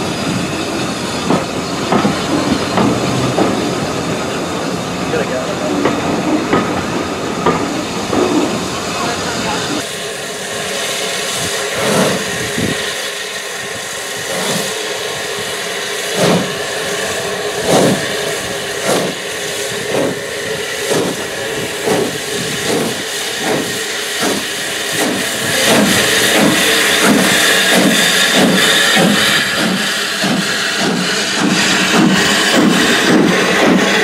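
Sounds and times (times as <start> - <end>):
steam hissing: 0.0 - 34.0
steam locomotive exhaust beats: 0.0 - 34.0.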